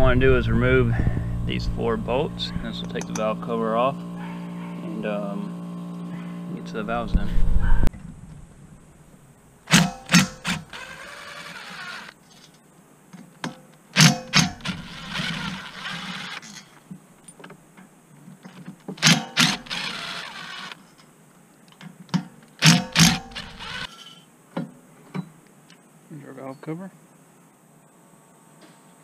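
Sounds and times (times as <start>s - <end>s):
cordless driver whirring: 9.7s - 12.2s, 14.4s - 16.4s, 19.0s - 20.8s, 22.6s - 24.0s.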